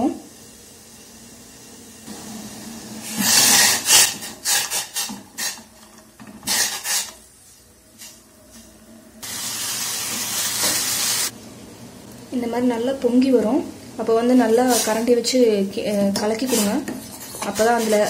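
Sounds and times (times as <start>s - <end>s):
hiss of liquid boiling: 0.0s - 5.7s, 9.2s - 11.4s.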